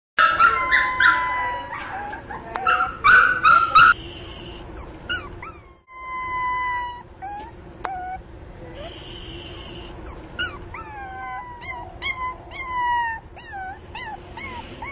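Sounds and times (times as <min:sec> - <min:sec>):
puppy crying and whining: 0:00.2 - 0:04.0, 0:04.7 - 0:08.9, 0:09.6 - 0:14.9.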